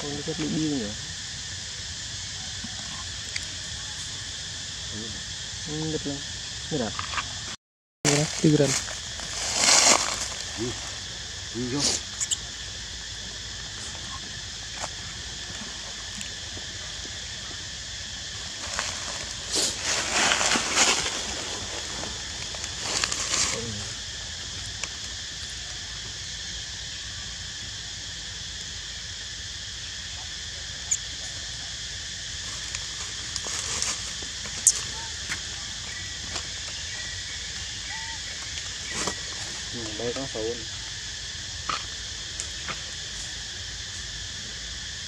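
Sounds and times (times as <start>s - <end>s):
high insect drone: 0.0s - 45.0s
rustling and scuffling: 8.1s - 11.0s, 18.5s - 24.0s.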